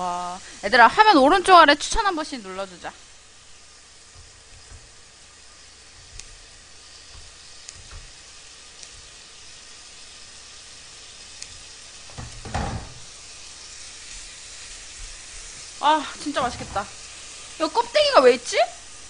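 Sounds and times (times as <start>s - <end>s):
meat sizzling in a frying pan: 0.0s - 19.0s
scissors and tongs clicking: 7.0s - 8.1s, 8.8s - 9.1s
loud knock: 12.2s - 13.0s.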